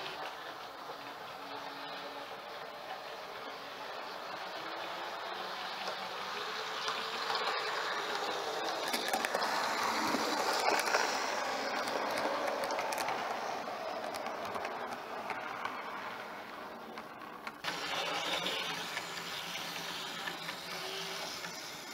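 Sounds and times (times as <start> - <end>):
model train running: 0.0 - 21.9.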